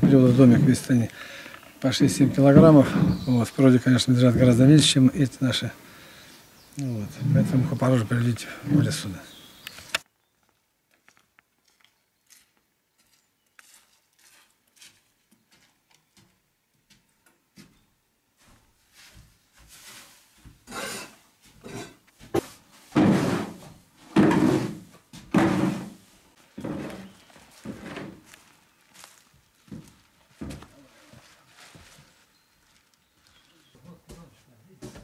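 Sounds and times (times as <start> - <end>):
tool scraping hay on wooden floor: 0.0 - 1.0, 2.1 - 3.3, 12.3 - 15.8, 18.9 - 32.9.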